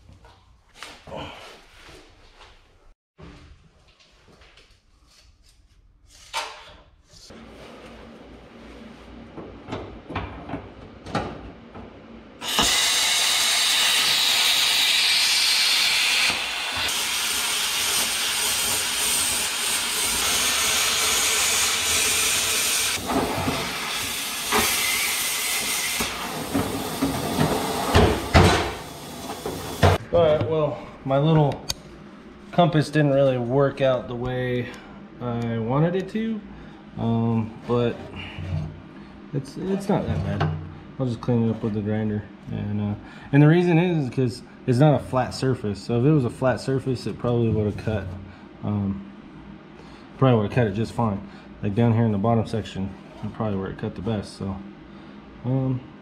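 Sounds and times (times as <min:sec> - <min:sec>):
plasma cutter hissing: 0:12.4 - 0:23.0.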